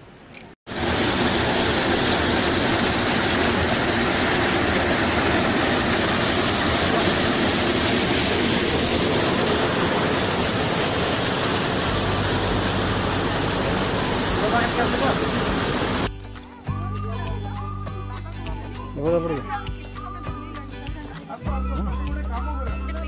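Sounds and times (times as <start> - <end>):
waterfall roaring: 0.7 - 16.1.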